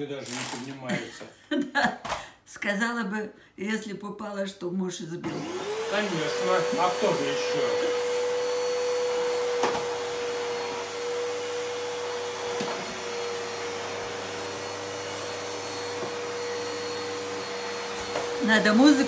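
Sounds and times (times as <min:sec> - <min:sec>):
vacuum cleaner motor whine: 0:05.2 - 0:19.0.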